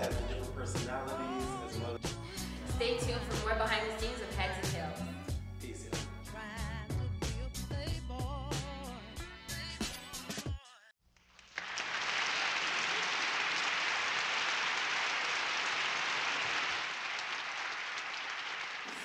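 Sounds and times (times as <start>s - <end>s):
audience applause: 11.4s - 19.0s.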